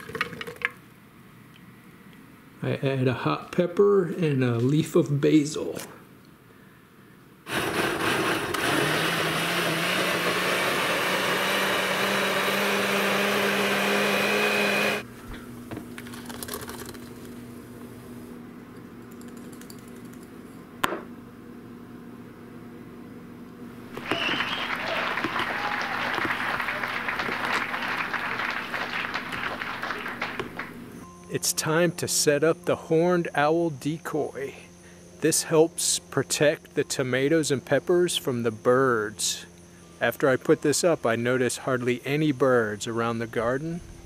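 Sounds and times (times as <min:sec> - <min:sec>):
blender running: 0:07.5 - 0:15.1, 0:23.9 - 0:30.9.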